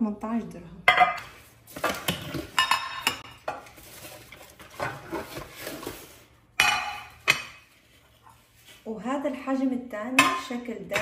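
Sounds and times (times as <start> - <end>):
baking trays clattering: 0.9 - 7.7.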